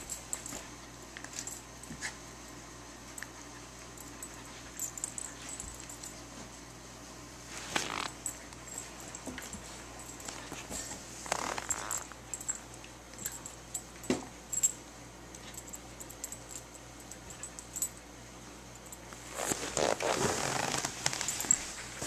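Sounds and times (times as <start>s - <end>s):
dogs scuffling on carpet: 7.4s - 12.6s, 19.1s - 22.0s
dogs rough play noise: 7.5s - 14.2s.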